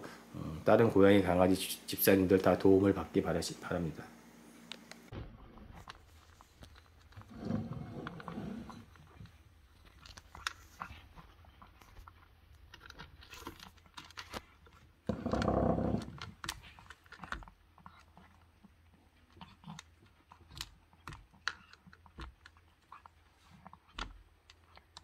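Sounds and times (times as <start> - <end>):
cat chewing from plastic bowl: 5.6 - 25.0.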